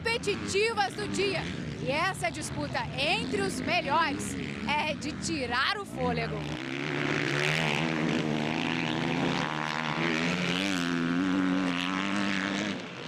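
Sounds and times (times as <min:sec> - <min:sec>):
motocross bike engines racing: 0:00.0 - 0:13.0.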